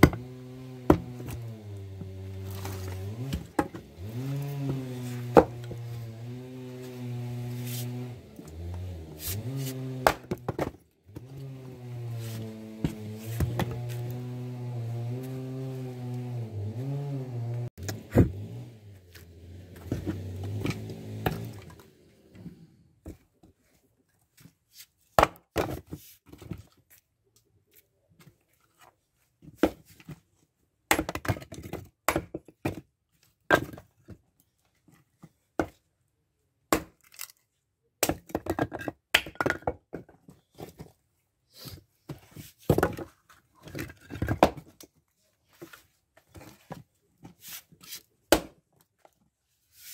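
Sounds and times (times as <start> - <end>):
axe splitting wood: 0.0 - 16.5, 17.8 - 21.9, 25.2 - 25.8, 30.9 - 32.8, 36.7 - 37.3, 38.0 - 39.8, 48.3 - 48.6.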